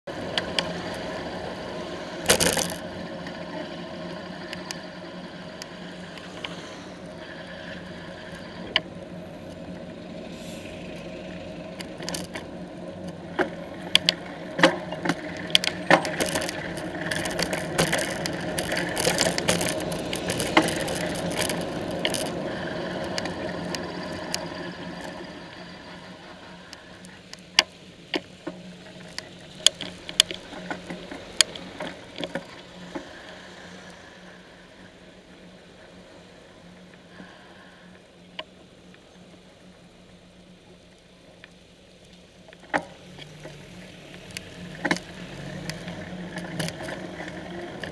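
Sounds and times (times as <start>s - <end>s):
traffic hum: 0.0s - 47.9s
bike clicks and rattles: 2.2s - 6.6s, 10.9s - 33.9s, 42.4s - 47.9s.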